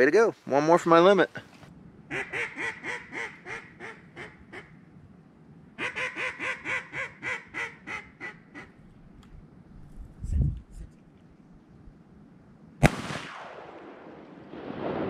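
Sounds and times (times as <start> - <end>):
duck call quacks: 2.1 - 4.7, 5.8 - 8.8.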